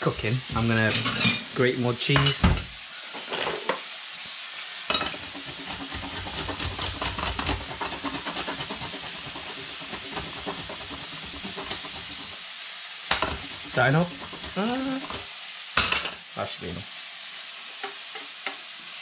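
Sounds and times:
bacon and garlic sizzling: 0.0s - 19.0s
cheese grating on metal grater: 5.1s - 12.5s, 13.1s - 15.3s.

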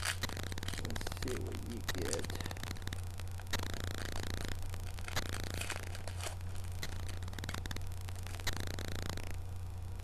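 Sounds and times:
cards rustling and clicking: 0.0s - 2.6s, 3.5s - 8.6s
low electrical hum: 0.0s - 10.0s.

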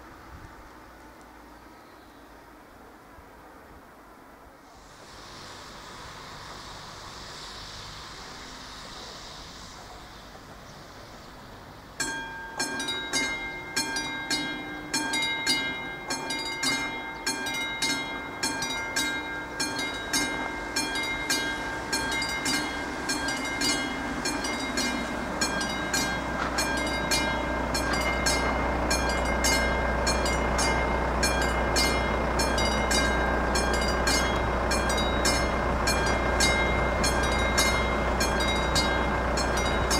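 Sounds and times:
train rumble: 0.0s - 39.9s
steady hiss: 4.5s - 12.0s
crossing warning bell ringing: 12.0s - 39.9s.

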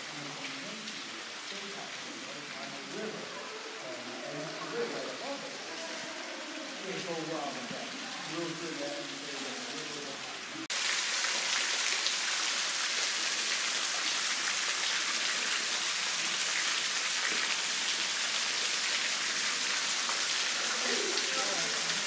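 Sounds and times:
waterfall splashing into pool: 6.9s - 22.0s.

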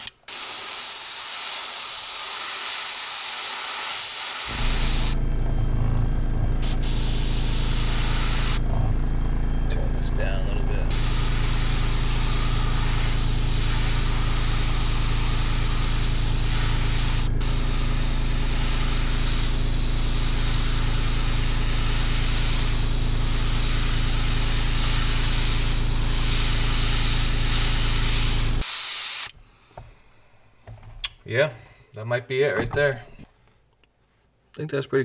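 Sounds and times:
airbrush spraying hiss: 0.0s - 5.2s, 6.6s - 8.6s, 10.9s - 29.4s
air compressor humming: 0.0s - 31.1s.

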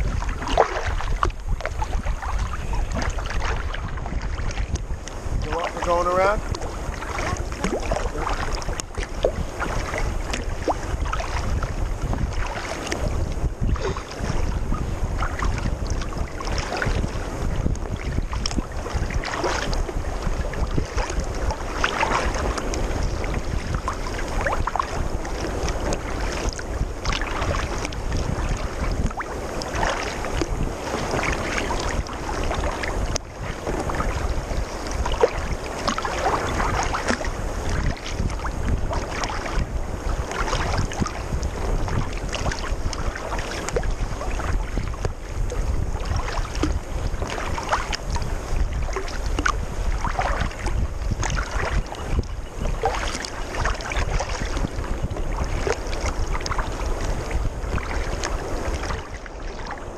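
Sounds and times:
water splashing against kayak: 0.0s - 59.9s
wind rumbling on microphone: 0.0s - 59.9s.

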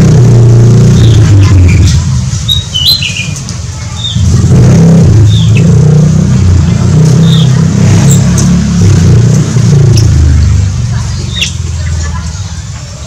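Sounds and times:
loud low hum: 0.0s - 2.6s, 4.0s - 11.8s
high bird chirps: 0.8s - 4.3s, 5.2s - 5.9s, 7.1s - 8.4s, 11.1s - 12.5s.

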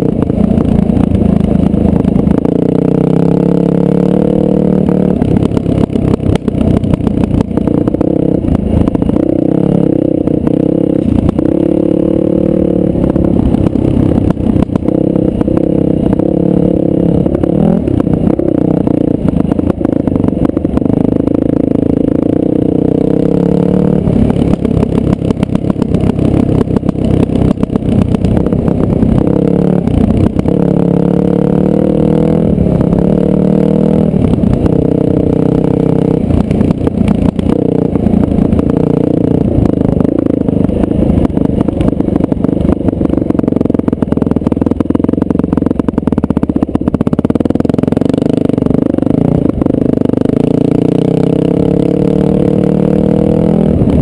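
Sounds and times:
dirt bike engine running: 0.0s - 54.0s.

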